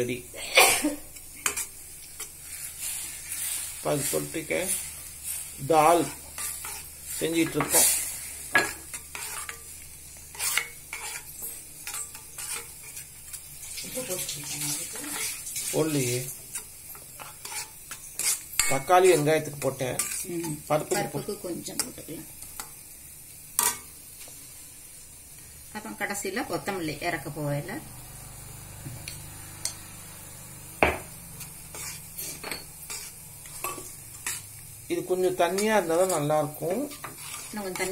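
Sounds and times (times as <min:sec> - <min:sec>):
faint sizzle: 0:00.0 - 0:37.9
spoon scraping metal pan: 0:01.2 - 0:22.0, 0:30.9 - 0:37.9
knock on a pan: 0:30.8 - 0:31.1.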